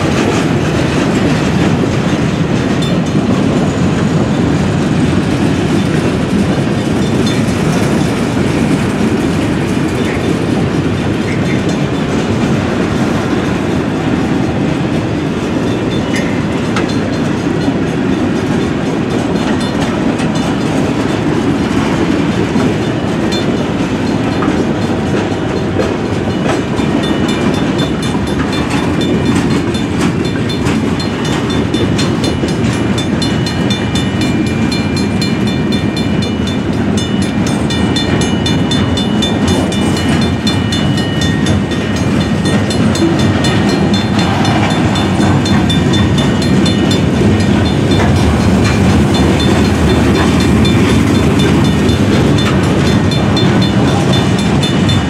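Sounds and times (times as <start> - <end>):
freight train rumbling: 0.0 - 55.0
wheels clacking over rail joints: 0.0 - 55.0.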